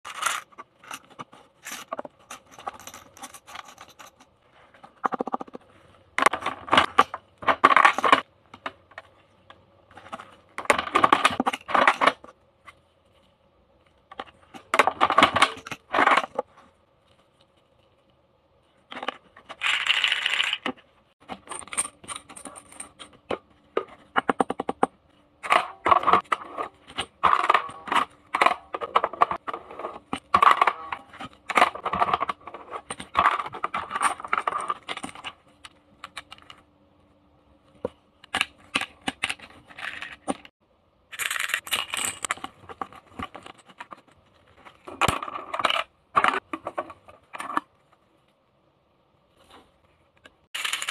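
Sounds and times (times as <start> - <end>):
plastic toys clattering: 0.0 - 9.1, 9.9 - 12.4, 14.1 - 16.6, 18.8 - 36.6, 38.2 - 40.5, 41.1 - 47.7, 50.5 - 50.9
plastic coins dropping: 19.6 - 20.7, 41.1 - 42.4, 50.6 - 50.9.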